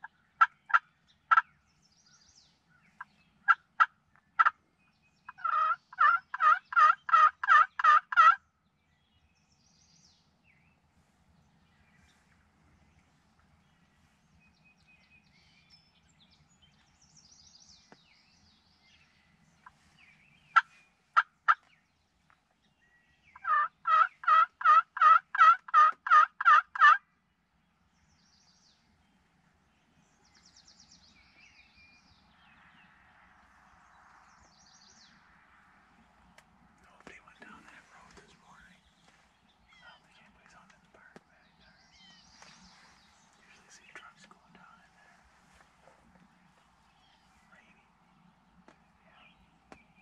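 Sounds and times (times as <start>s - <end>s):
turkey calls: 0.0s - 1.5s, 2.9s - 4.7s, 5.3s - 8.4s, 20.5s - 21.7s, 23.3s - 27.1s.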